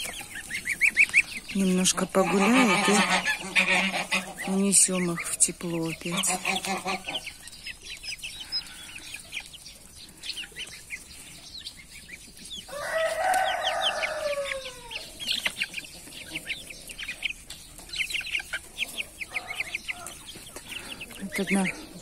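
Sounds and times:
chicks peeping: 0.0 - 22.0
rooster crowing: 12.7 - 15.2.

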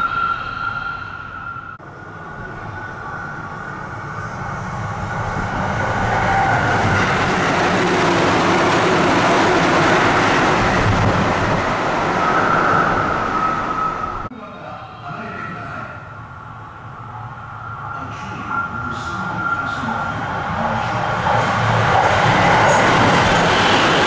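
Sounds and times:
steady high tone: 0.0 - 4.5
train passing at speed: 0.0 - 24.0.

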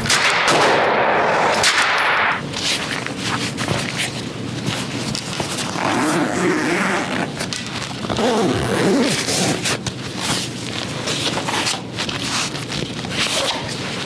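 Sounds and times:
zipper rasping open: 5.6 - 9.8.

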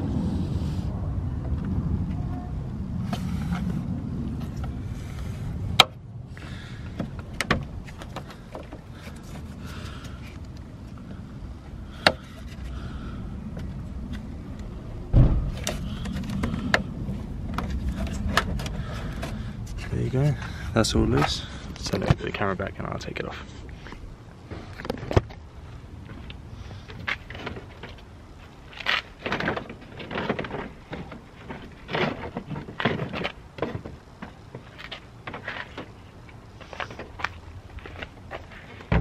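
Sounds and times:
plastic bumper creaking and clicking: 13.6 - 19.4, 28.7 - 36.0
bumper cover thump: 15.1 - 15.8.

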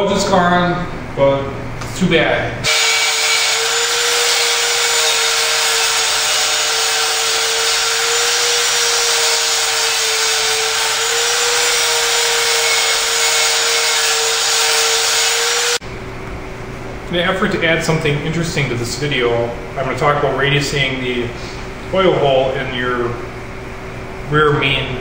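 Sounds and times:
die grinder grinding metal: 2.7 - 15.8.

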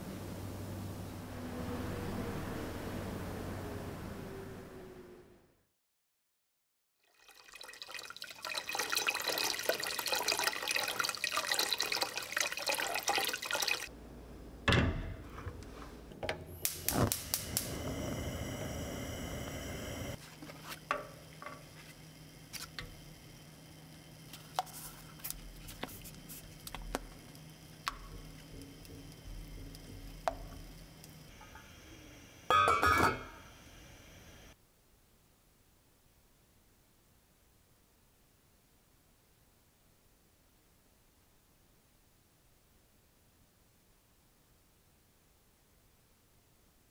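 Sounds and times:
low steady hum: 0.0 - 5.4, 13.8 - 34.6
water running from a tap: 7.0 - 13.9
kitchen clicks and knocks: 14.7 - 16.5, 32.5 - 33.3.

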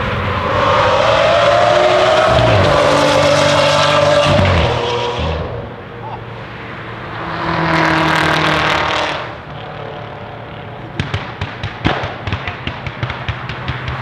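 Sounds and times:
car passing at speed: 0.0 - 10.8
sharp exhaust cracks: 10.8 - 14.0.

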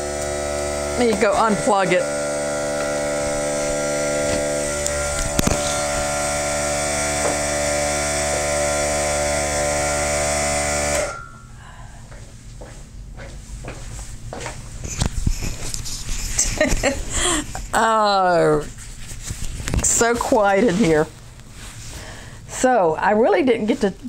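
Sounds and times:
air compressor motor humming: 0.0 - 11.5.

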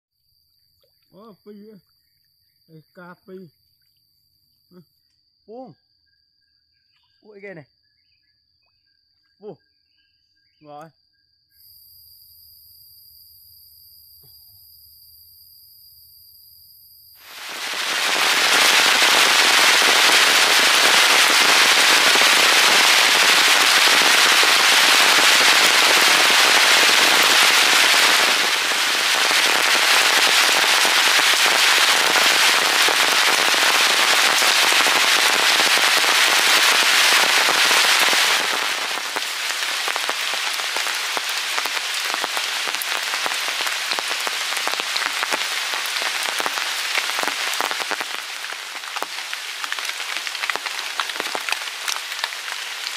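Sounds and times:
heavy rain falling: 17.2 - 52.9.

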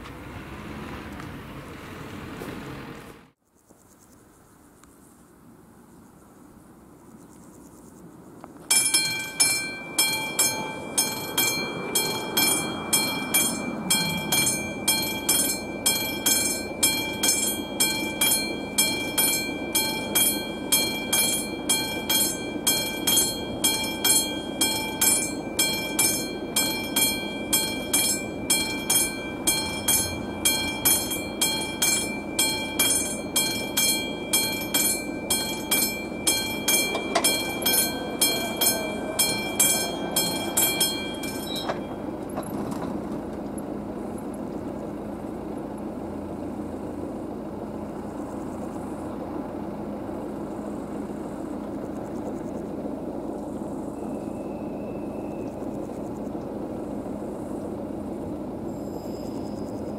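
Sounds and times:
level crossing bell ringing: 8.7 - 42.5.

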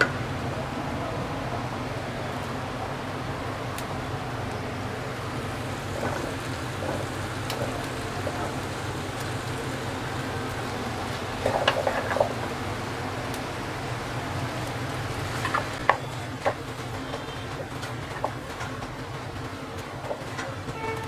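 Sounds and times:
vegetables sizzling in a pot: 5.1 - 21.0
wooden spatula stirring and scraping: 5.8 - 9.3, 11.1 - 12.5, 15.2 - 21.0.

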